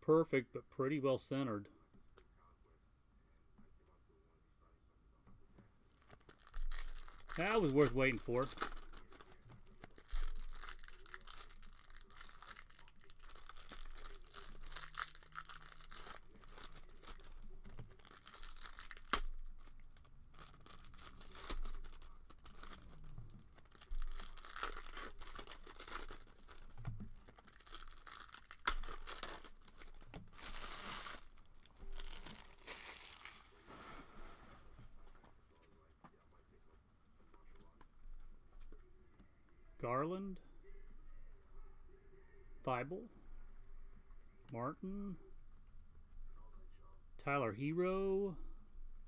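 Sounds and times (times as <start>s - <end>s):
plastic wrappers tearing and crinkling: 5.9s - 33.8s.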